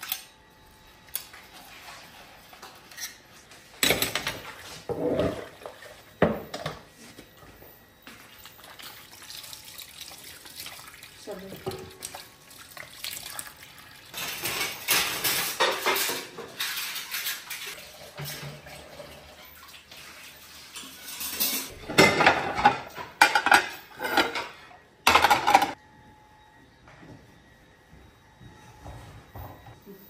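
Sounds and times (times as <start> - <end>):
dishes clattering in sink: 3.8 - 6.9, 11.6 - 12.1, 14.1 - 25.8.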